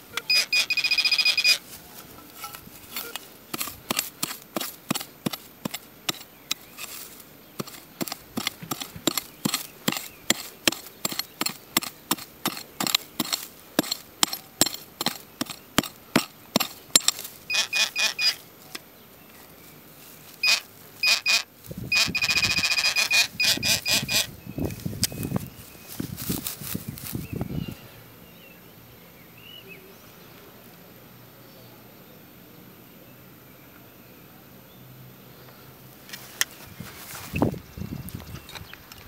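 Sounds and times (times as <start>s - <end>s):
metal detector beeps: 0.0s - 1.7s, 2.4s - 3.3s, 16.9s - 18.4s, 20.4s - 25.4s.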